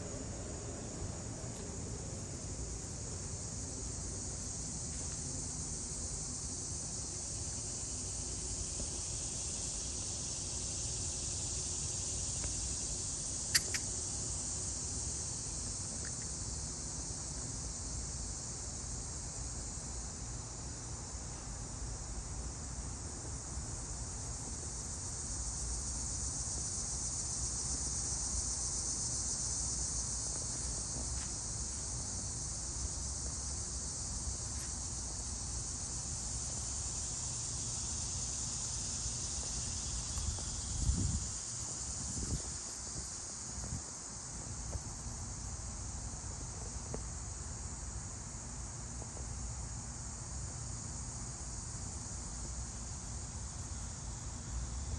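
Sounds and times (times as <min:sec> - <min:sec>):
high-pitched insect chorus: 0:00.0 - 0:54.9
sharp click: 0:13.5 - 0:13.9.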